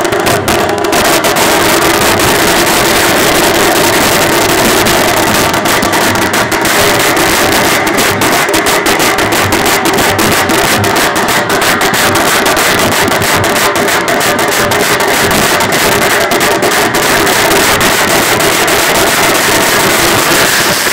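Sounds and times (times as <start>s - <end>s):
fast side drums drumming: 0.0s - 20.9s.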